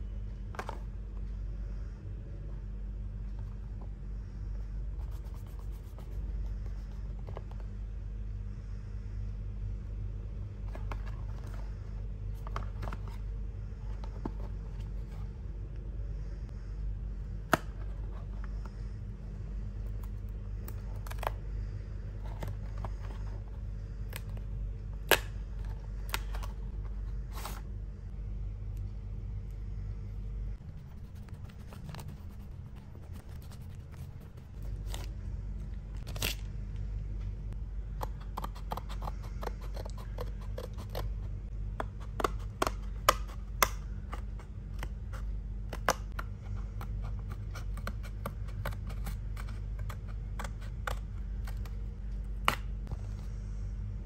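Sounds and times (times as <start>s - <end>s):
steady low hum: 0.0s - 54.0s
scissors cutting cardboard: 38.0s - 41.2s, 41.8s - 51.8s.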